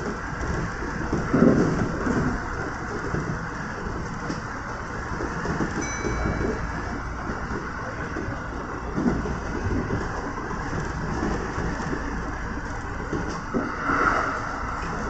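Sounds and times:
train wheels rumbling on rails: 0:00.0 - 0:15.0
faint high tone: 0:05.8 - 0:07.1.

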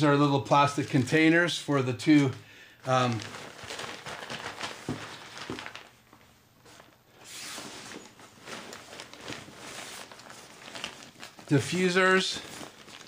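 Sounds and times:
fabric rustling and scraping: 0:03.4 - 0:13.0.

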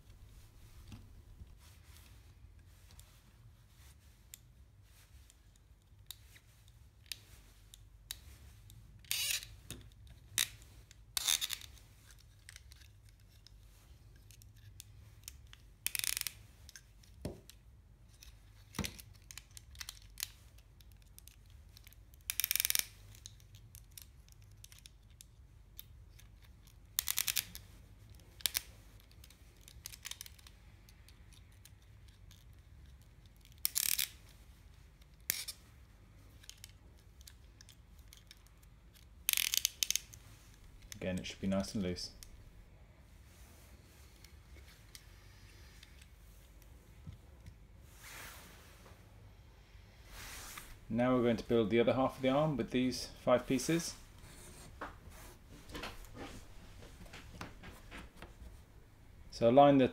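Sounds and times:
screwdriver scraping plastic: 0:09.0 - 0:09.6.

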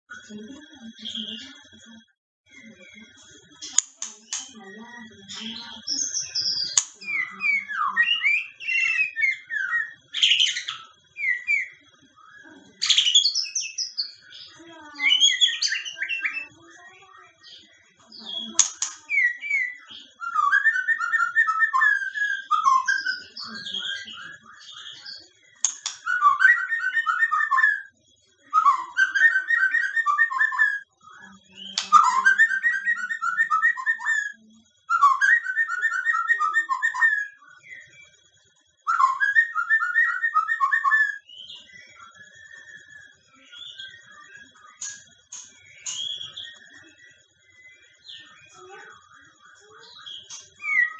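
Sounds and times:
bird singing whistled phrases: 0:03.7 - 0:38.2, 0:38.8 - 0:50.9.

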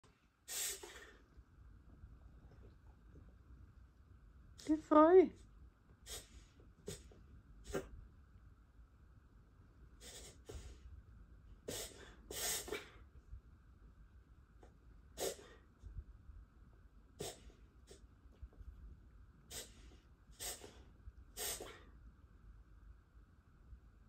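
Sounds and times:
dog reverse sneezing: 0:00.4 - 0:01.2, 0:06.0 - 0:08.0, 0:10.0 - 0:10.8, 0:11.7 - 0:13.0, 0:15.2 - 0:15.6, 0:17.2 - 0:18.0, 0:19.5 - 0:21.9.

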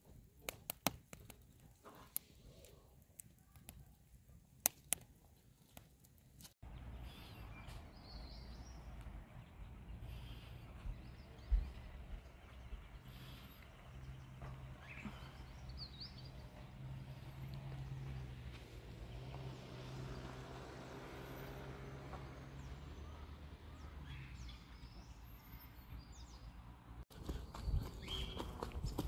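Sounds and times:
bird chirps: 0:23.0 - 0:26.6, 0:27.2 - 0:28.6.

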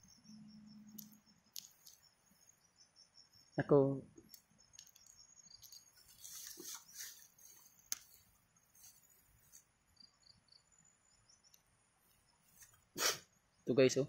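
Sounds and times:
high insect chirps: 0:00.0 - 0:14.0
leaves and grass rustling: 0:05.0 - 0:09.7.

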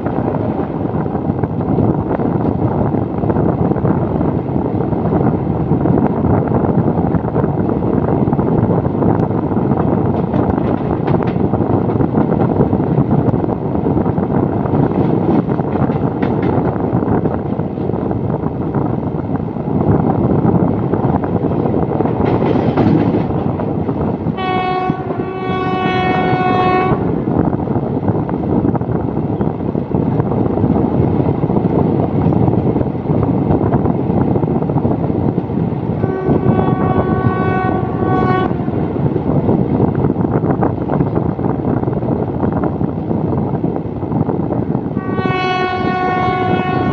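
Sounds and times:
train wheels rumbling on rails: 0:00.0 - 0:46.9
train horn blasts: 0:24.4 - 0:27.1, 0:36.0 - 0:38.8, 0:45.0 - 0:46.9.

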